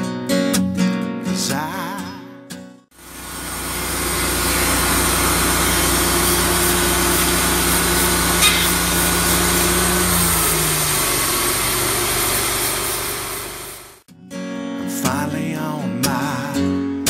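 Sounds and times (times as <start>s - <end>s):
band sawmill sawing log: 3.0s - 14.0s
saw blade striking nail: 4.4s - 10.6s.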